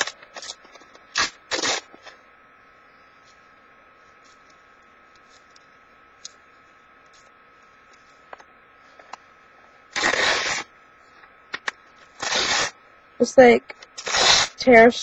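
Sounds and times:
paper tearing: 0:00.0 - 0:02.0, 0:10.0 - 0:10.7, 0:12.2 - 0:12.7, 0:14.0 - 0:14.6
steady low hiss: 0:00.0 - 0:15.0.

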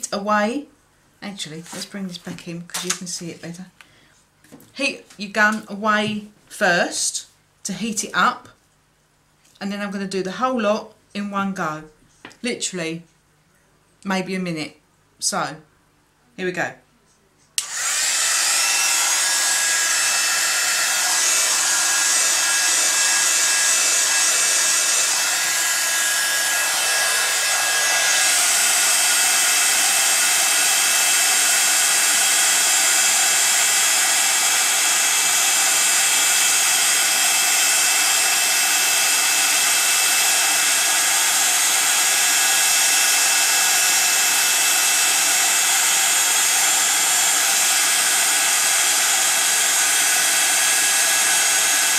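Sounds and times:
heat gun blowing hot air: 0:17.6 - 0:51.9.

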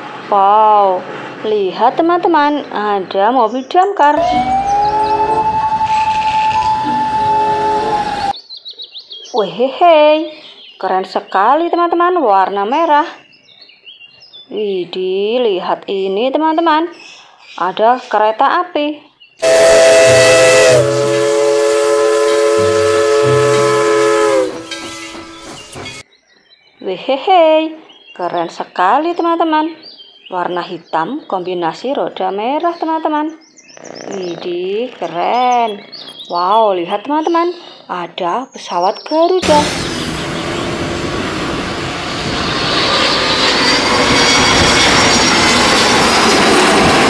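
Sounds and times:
steam locomotive whistle: 0:04.2 - 0:08.4, 0:19.4 - 0:26.0, 0:39.4 - 0:41.3
steam hissing: 0:04.3 - 0:08.3, 0:19.4 - 0:26.0, 0:39.4 - 0:42.8
high engine whine: 0:39.4 - 0:47.0
jet engines rushing: 0:39.4 - 0:47.0.

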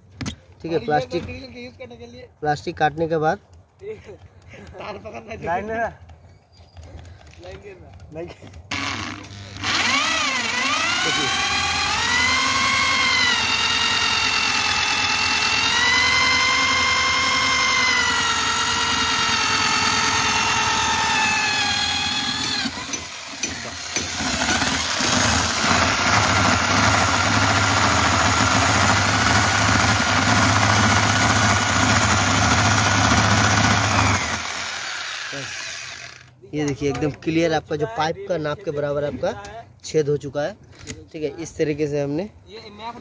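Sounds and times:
hammer drill motor whining: 0:08.7 - 0:36.4.

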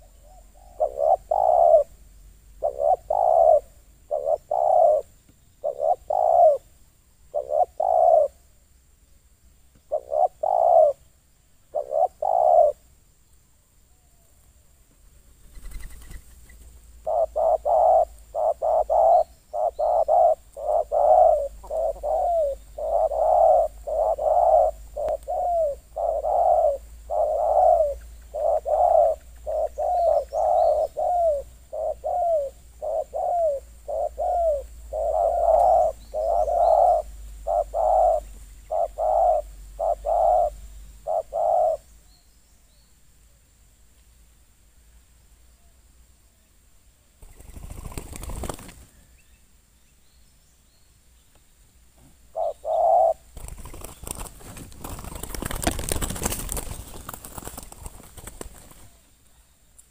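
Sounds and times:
doves cooing: 0:00.0 - 0:02.0, 0:02.6 - 0:06.7, 0:07.3 - 0:08.4, 0:09.9 - 0:11.0, 0:11.7 - 0:12.8, 0:17.0 - 0:42.0, 0:52.0 - 0:59.0.

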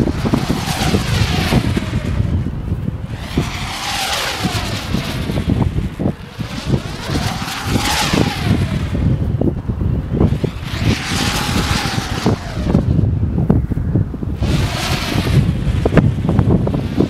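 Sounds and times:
kite whooshing through air: 0:00.0 - 0:17.0
wind buffeting microphone: 0:00.0 - 0:17.0.

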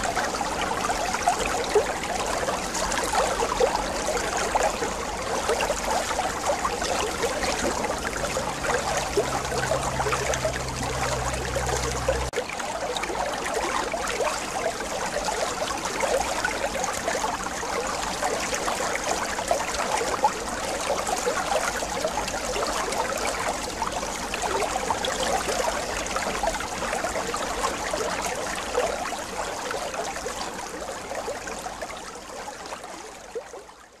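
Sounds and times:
low steady hum: 0:00.0 - 0:12.4
water trickling into tanks: 0:00.0 - 0:34.0.

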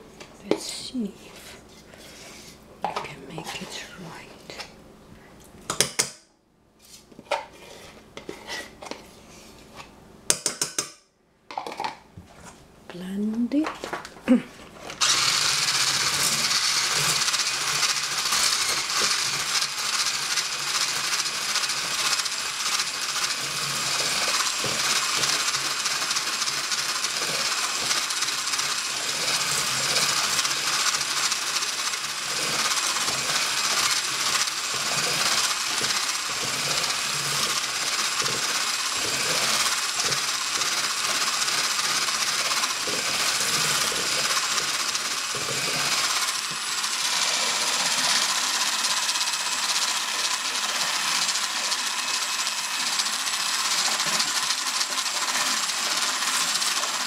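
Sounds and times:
electric kitchen mixer running: 0:15.0 - 0:57.0.

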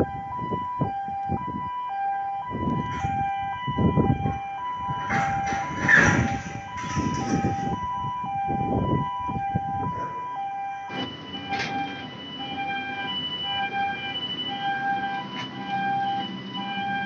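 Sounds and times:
two-tone crane warning alarm: 0:00.0 - 0:17.0
rough low rumbling: 0:02.4 - 0:10.2.

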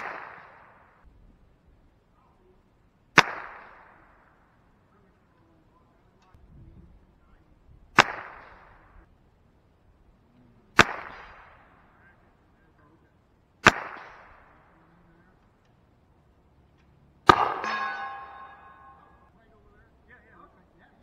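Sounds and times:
rifle shots with echo: 0:00.0 - 0:01.0, 0:03.1 - 0:04.6, 0:07.9 - 0:09.1, 0:10.7 - 0:12.3, 0:13.6 - 0:14.9, 0:17.2 - 0:19.3.

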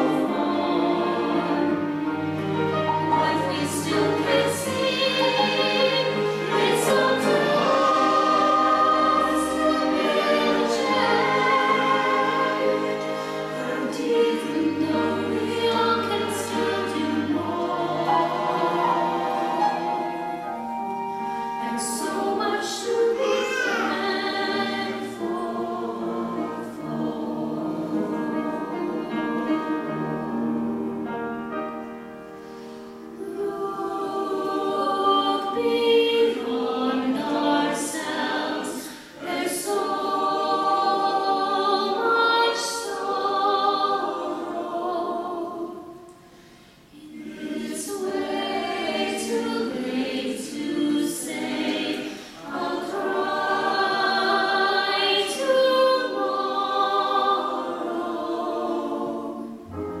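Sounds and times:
orchestra playing: 0:00.0 - 0:23.0
choir singing: 0:00.0 - 1:00.0.

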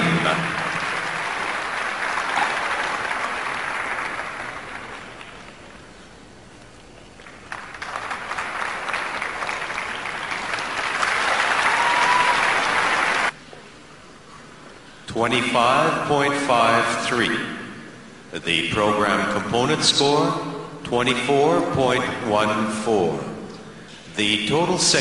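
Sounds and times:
audience applauding: 0:00.0 - 0:05.8, 0:07.2 - 0:13.4.

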